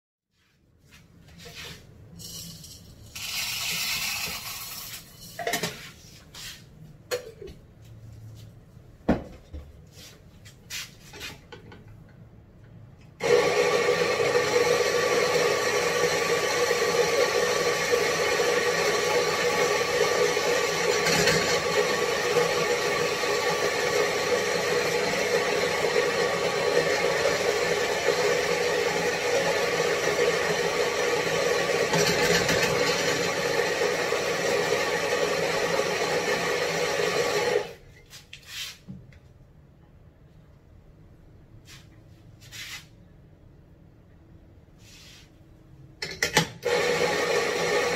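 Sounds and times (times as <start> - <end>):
coffee beans rattling: 2.2 - 5.5
coffee grinder motor grinding: 2.6 - 5.0, 13.2 - 37.8, 46.6 - 47.9.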